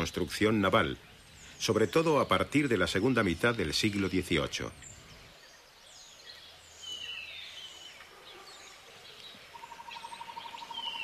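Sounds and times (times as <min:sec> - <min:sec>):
bird whistles and chirps: 0:09.6 - 0:11.0.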